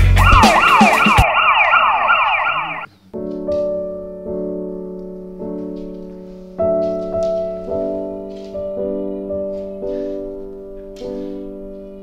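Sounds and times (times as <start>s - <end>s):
slow piano chords: 2.8s - 12.0s.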